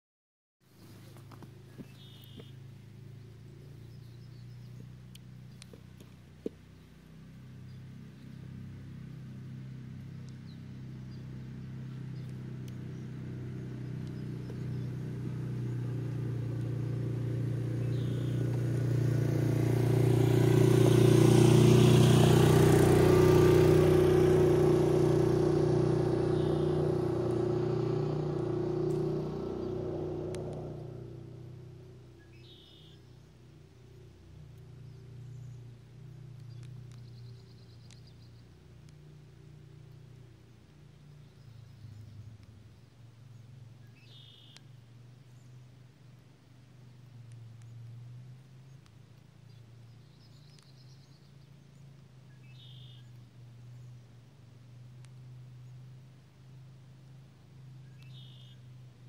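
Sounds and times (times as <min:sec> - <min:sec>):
engine passing by humming: 0:00.8 - 0:59.0.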